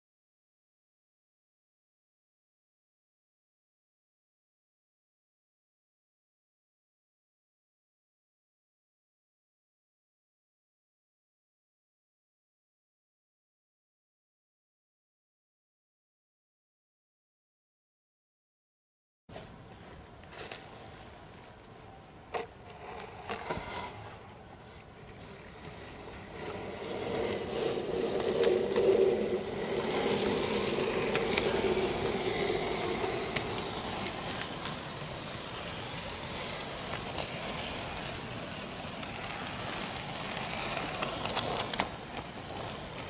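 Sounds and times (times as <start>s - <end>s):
model train rattling on track: 25.6s - 43.0s.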